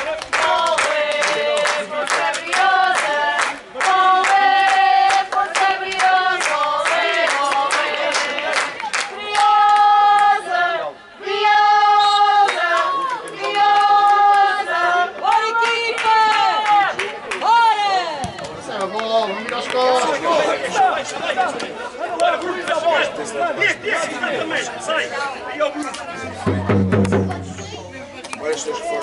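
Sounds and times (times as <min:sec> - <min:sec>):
crowd singing a chant: 0:00.0 - 0:15.8.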